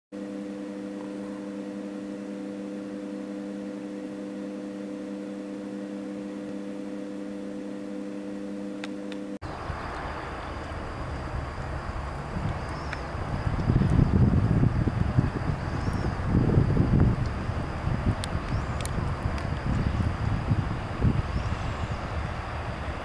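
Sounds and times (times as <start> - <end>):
faint high whine: 0.1 - 23.0
hum of held tones: 0.1 - 23.0
outdoor rumble: 5.7 - 23.0
wind on microphone: 9.4 - 23.0.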